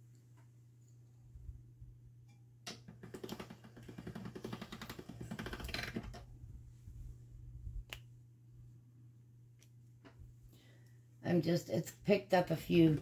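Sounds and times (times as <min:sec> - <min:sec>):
pasta machine crank clicking: 0:02.7 - 0:06.2.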